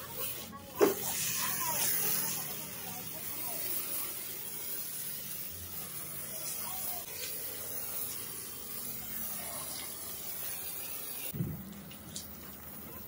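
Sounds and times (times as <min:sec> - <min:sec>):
water hose spraying on car: 0:00.0 - 0:13.0
thump: 0:11.4 - 0:11.6.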